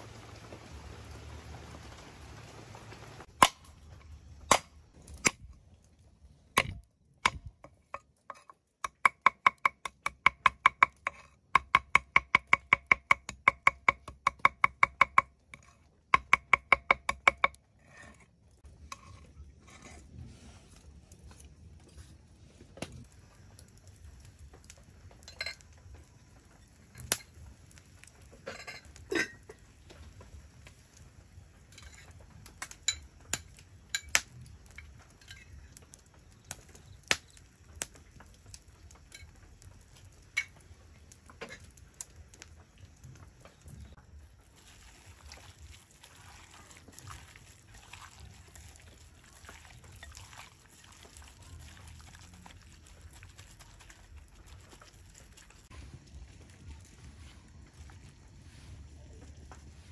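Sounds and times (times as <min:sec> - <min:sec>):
steady hiss: 0:00.0 - 0:04.9.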